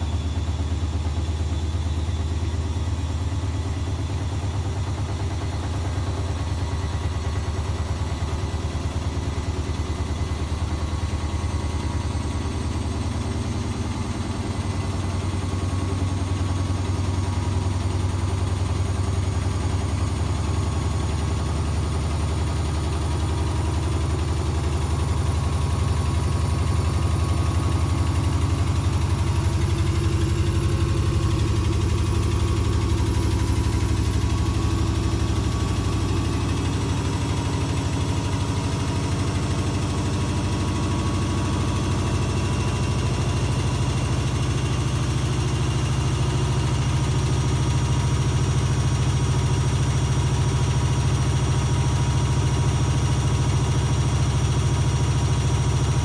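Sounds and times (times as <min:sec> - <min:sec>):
washing machine spin cycle pulsing: 0:00.0 - 0:56.0.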